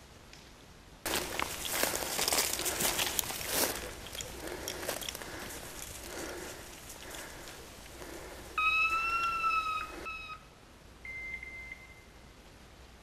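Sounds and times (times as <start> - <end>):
rustling through undergrowth: 1.0 - 10.1
whistle signal tones: 8.6 - 12.2.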